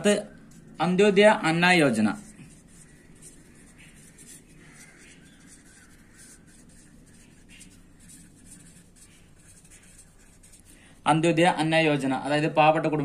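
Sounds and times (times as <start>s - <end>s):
marker scratching on paper: 0.0s - 12.1s
faint bird call: 2.2s - 8.2s.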